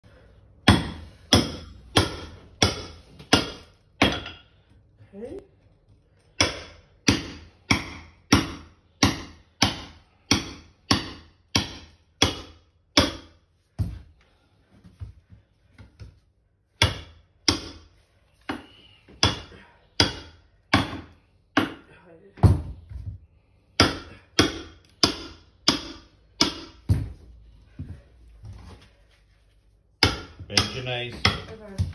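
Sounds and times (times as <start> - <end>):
hammer striking chisel on tiles: 0.6 - 4.4, 6.4 - 13.4, 16.8 - 17.9, 18.5 - 21.9, 23.7 - 27.1, 30.0 - 31.9.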